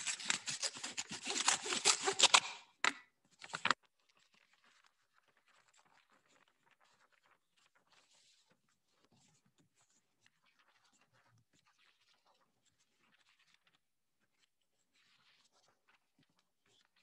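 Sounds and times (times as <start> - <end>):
faint paper rustling: 0.0 - 2.6, 3.3 - 3.8
paper ripping: 0.0 - 2.7, 3.4 - 3.8.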